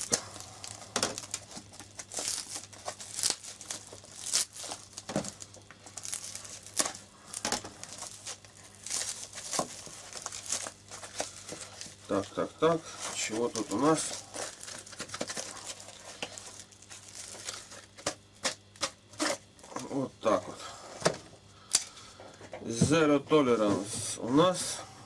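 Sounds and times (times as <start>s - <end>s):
plastic wrap tearing and crinkling: 0.0s - 19.8s.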